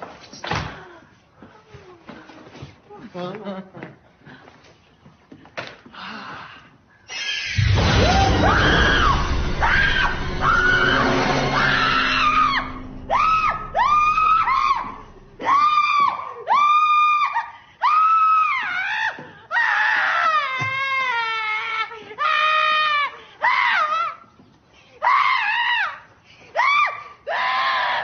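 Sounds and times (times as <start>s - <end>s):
people screaming in panic: 7.1s - 21.6s
low steady drone: 7.6s - 16.1s.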